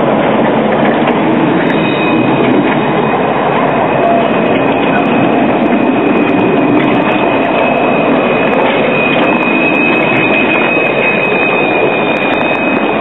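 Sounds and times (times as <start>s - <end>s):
tram rolling on rails: 0.0s - 13.0s
high-pitched wheel squeal: 0.8s - 13.0s.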